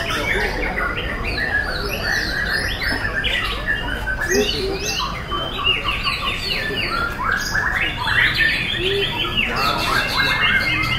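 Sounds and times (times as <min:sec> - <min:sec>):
birds singing whistled phrases: 0:00.0 - 0:10.9.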